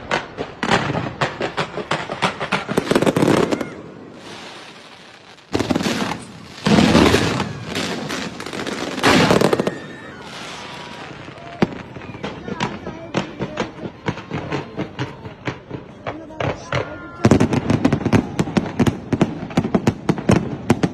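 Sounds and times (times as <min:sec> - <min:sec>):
fireworks hissing: 0:00.0 - 0:15.6
fireworks crackling bangs: 0:00.0 - 0:20.9.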